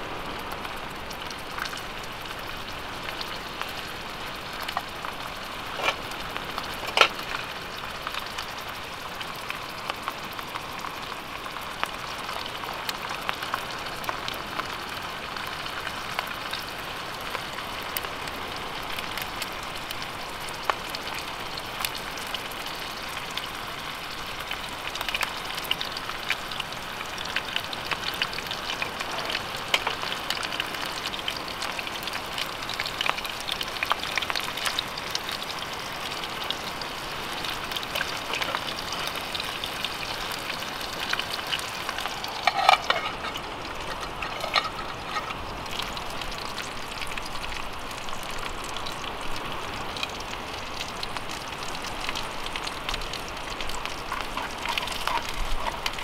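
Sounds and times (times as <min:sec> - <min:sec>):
fish sizzling in a pan: 0:00.0 - 0:56.0
crackling pops: 0:04.6 - 0:07.5.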